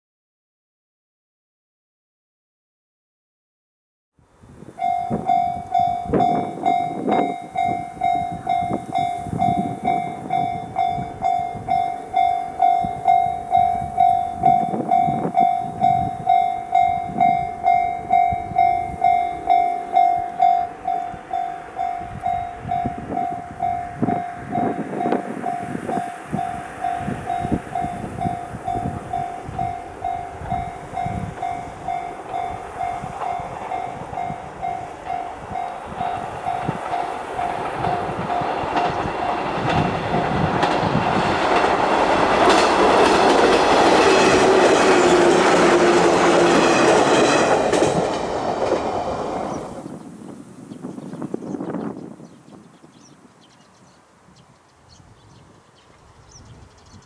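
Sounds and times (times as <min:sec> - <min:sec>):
faint electric train approaching: 0:04.2 - 0:52.6
level crossing bell ringing: 0:04.8 - 0:38.5.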